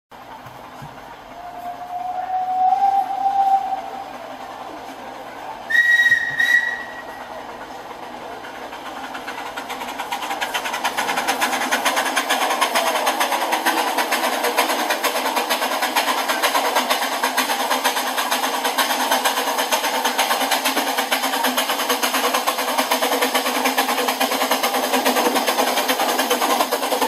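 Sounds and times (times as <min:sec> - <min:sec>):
steam chuffing: 0:00.2 - 0:27.0
model train whistle: 0:01.3 - 0:04.2, 0:05.7 - 0:07.3.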